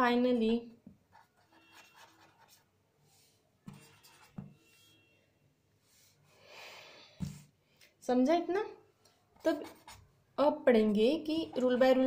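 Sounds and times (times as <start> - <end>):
ballpoint pen writing on paper: 1.1 - 2.6, 3.7 - 4.6, 9.5 - 10.0.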